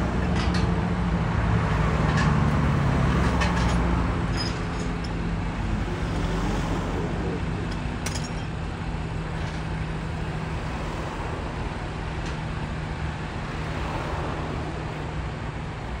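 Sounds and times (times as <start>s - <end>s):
truck diesel engine idling: 4.1s - 16.0s.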